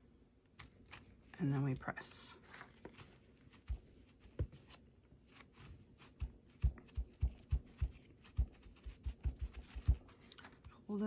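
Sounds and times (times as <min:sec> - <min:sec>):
hands patting paper towel: 0:02.4 - 0:10.9.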